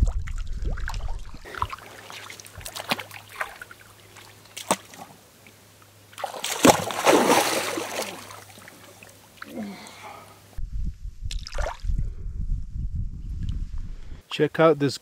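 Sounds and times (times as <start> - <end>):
person falling into water: 0.0 - 3.7, 6.2 - 9.8
fish splashing on water: 0.7 - 5.2, 6.1 - 9.4.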